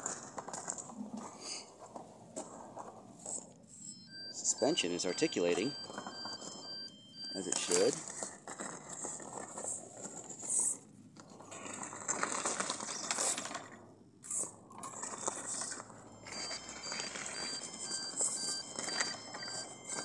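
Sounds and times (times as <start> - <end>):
wheels grinding on gravel and bark: 0.0 - 3.4, 7.4 - 20.0
electric drive motors running: 12.5 - 20.0.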